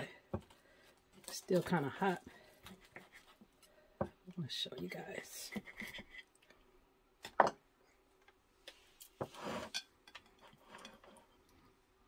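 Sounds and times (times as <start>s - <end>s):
dish scraping on board: 9.2s - 11.3s.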